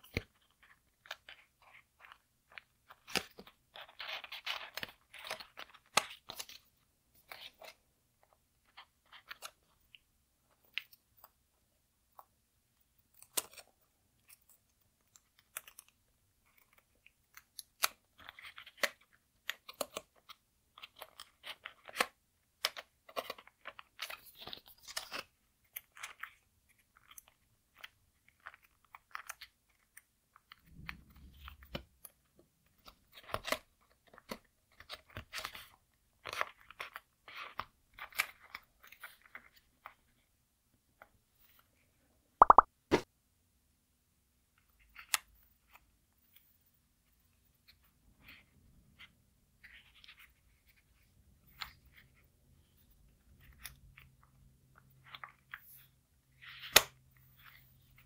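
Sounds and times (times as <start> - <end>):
paper clicks and rustles: 13.2 - 40.1.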